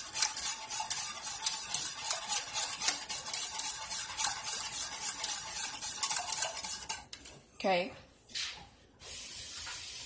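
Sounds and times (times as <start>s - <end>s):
utensil scraping a saucepan: 0.0s - 7.4s.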